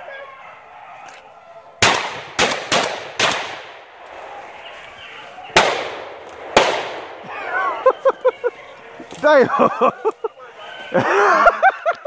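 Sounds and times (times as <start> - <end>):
gunshots echoing: 1.8 - 4.0, 5.5 - 7.4.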